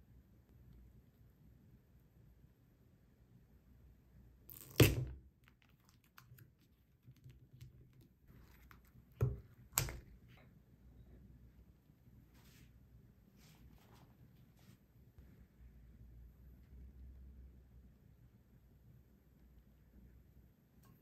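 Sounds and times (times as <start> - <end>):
plastic film ripping: 4.5 - 5.1
plastic cup thunk on wooden table: 4.7 - 5.2, 9.2 - 10.1.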